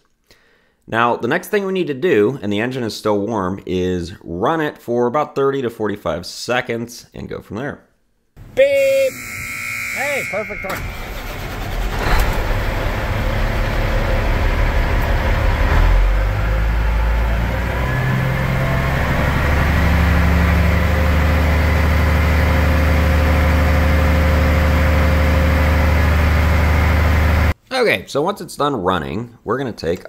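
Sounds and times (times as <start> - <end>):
diesel engine revving: 10.3 - 27.6.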